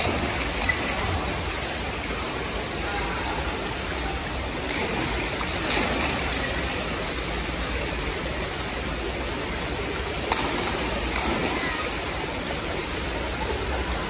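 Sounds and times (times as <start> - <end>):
fountain jets splashing: 0.0 - 14.0.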